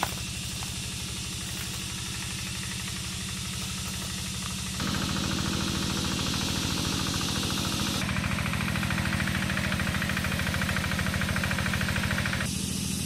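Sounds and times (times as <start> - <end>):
hand tractor engine chugging: 0.0 - 12.5.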